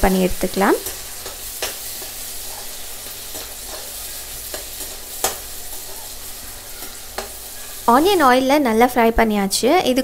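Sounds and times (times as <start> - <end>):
vegetables sizzling in hot oil: 0.0 - 9.8
metal spoon scraping and tapping pan: 0.7 - 6.2, 6.8 - 7.5.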